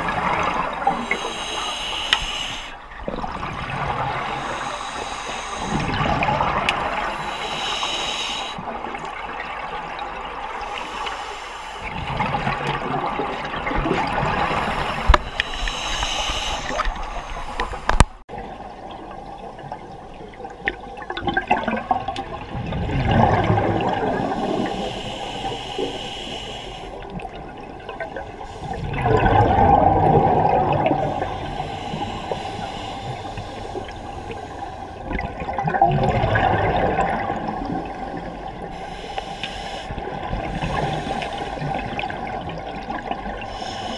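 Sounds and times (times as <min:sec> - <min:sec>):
regulator hiss: 0:01.0 - 0:02.8, 0:04.3 - 0:06.0, 0:07.1 - 0:08.6, 0:14.6 - 0:18.0, 0:24.4 - 0:27.0, 0:31.0 - 0:34.9, 0:38.7 - 0:41.7, 0:43.5 - 0:43.9
bubbles from regulator exhalations: 0:21.0 - 0:24.6, 0:27.2 - 0:31.2, 0:35.0 - 0:38.6.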